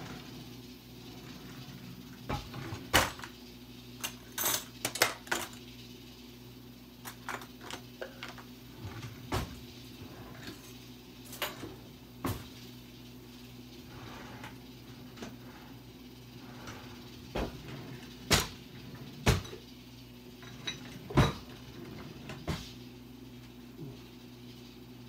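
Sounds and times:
metal utensils clinking: 0:04.0 - 0:05.6.

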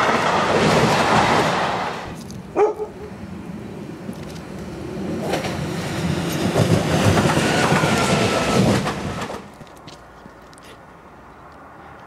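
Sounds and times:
train wheels clacking over track: 0:00.0 - 0:02.2, 0:04.2 - 0:09.6.

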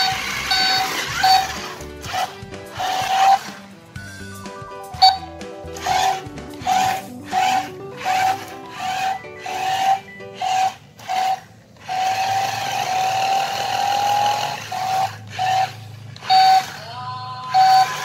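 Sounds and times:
electronic beeps: 0:00.0 - 0:01.4, 0:04.7 - 0:05.4, 0:08.5 - 0:10.5
rising electronic tone: 0:00.0 - 0:10.8.

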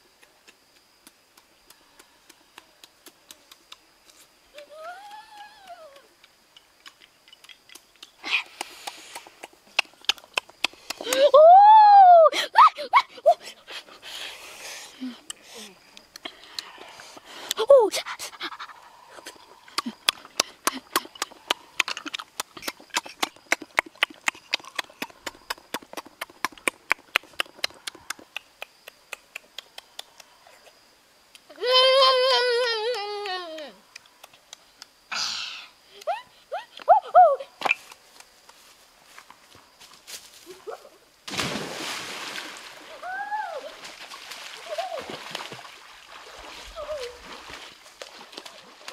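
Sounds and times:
wet clicks of eating snails: 0:00.1 - 0:04.7, 0:05.3 - 0:11.2, 0:15.2 - 0:17.6, 0:19.5 - 0:31.5, 0:32.9 - 0:35.1
person crying out: 0:11.1 - 0:13.3
person plunging into river: 0:41.2 - 0:48.9
water sloshing: 0:41.3 - 0:43.0, 0:43.6 - 0:48.9.

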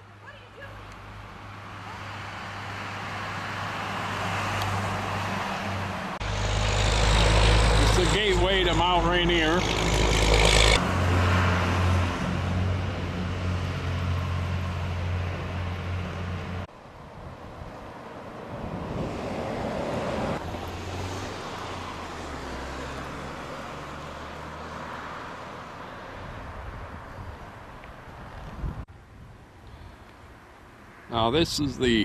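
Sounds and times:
traffic noise: 0:00.0 - 0:32.0
car engine hum: 0:05.8 - 0:16.8.

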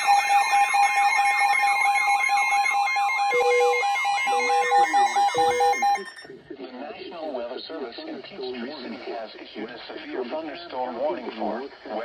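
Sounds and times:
warbling siren-like alarm: 0:00.0 - 0:06.2
high beeping tones: 0:00.0 - 0:06.3
lower beep: 0:01.4 - 0:06.2.

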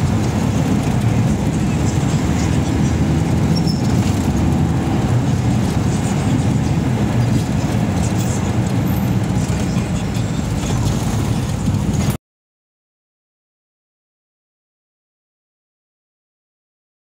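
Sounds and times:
vehicle engine and road rumble: 0:00.0 - 0:12.2.

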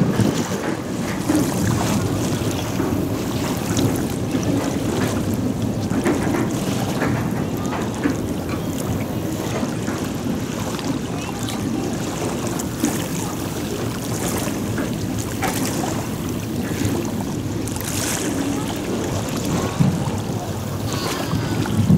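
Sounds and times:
small waves lapping: 0:00.0 - 0:21.9
wind buffeting microphone: 0:00.0 - 0:21.9.

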